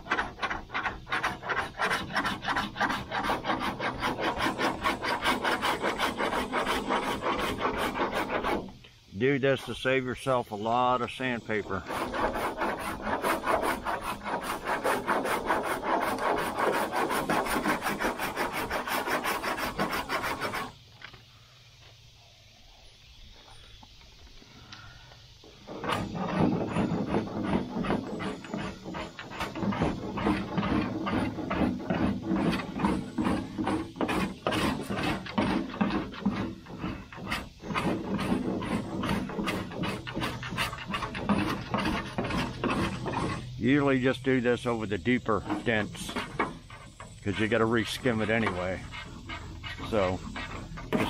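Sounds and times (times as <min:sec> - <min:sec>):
rasp scraping body filler: 0:00.0 - 0:20.8, 0:25.5 - 0:51.0
rasp shaving body filler: 0:47.2 - 0:51.0.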